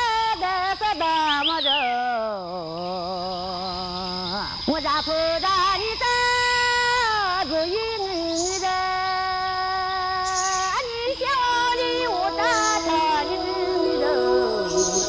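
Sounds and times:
high voice singing held notes: 11.4s - 15.0s
steady high tone: 11.5s - 15.0s.

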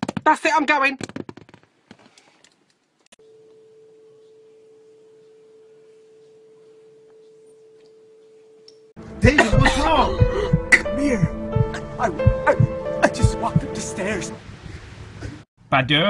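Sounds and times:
steady pure tone: 3.2s - 14.4s.

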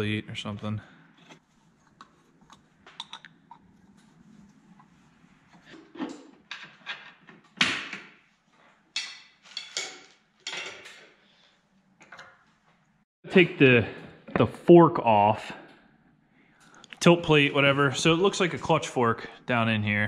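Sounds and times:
metal parts clinking and knocking: 9.0s - 11.2s.

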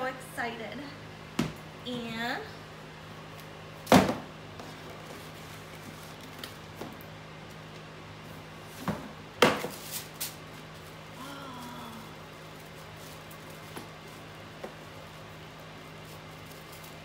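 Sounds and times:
tissue paper rustling: 9.7s - 17.0s.

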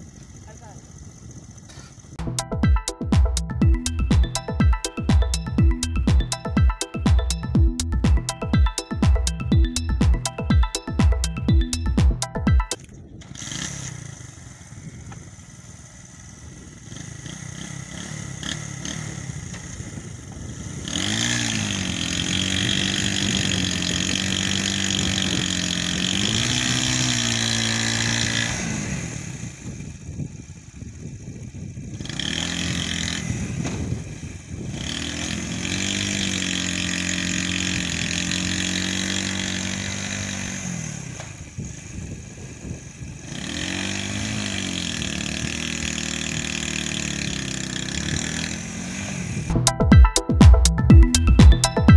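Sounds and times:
motorcycle engine revving under load: 0.0s - 2.4s, 12.7s - 49.6s.

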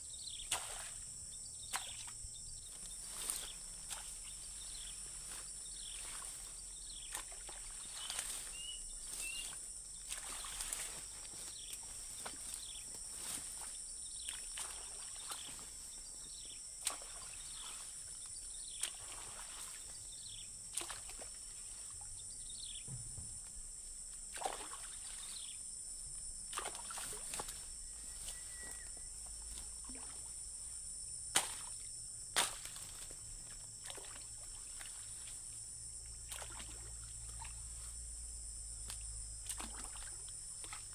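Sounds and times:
machete chopping through grass: 31.3s - 31.7s, 32.3s - 32.9s.

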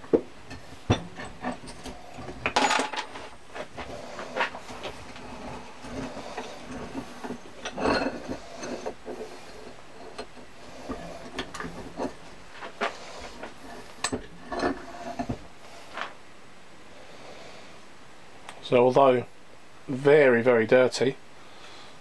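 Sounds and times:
metal scraping: 0.0s - 16.2s
metal vice parts knocking: 0.5s - 3.3s.

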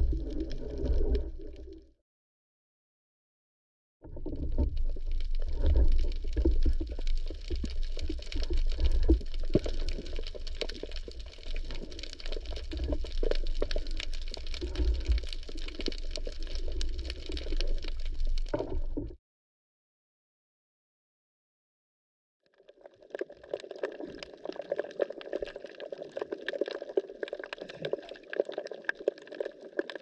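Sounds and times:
dense crackling clicks: 0.0s - 1.8s, 4.1s - 19.1s
underwater rumble of moving water: 0.0s - 1.9s, 4.0s - 19.2s.

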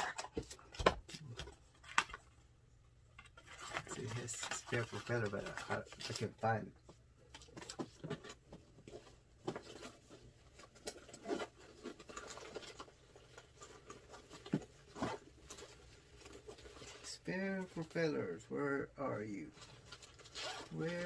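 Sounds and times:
rummaging rustling: 3.1s - 18.1s, 19.2s - 21.0s.

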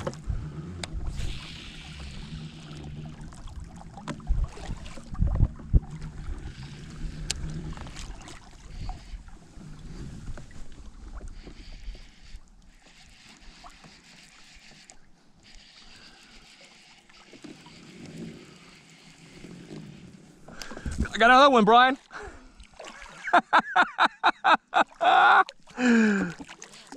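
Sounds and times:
waves lapping against plastic hull: 0.0s - 24.0s, 24.7s - 26.9s
wind on microphone: 3.6s - 11.9s.

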